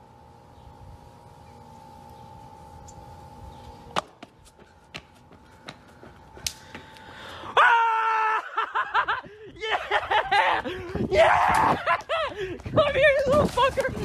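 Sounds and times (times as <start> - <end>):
faint steady whine: 0.0 - 11.1
loud laughter: 7.7 - 10.9.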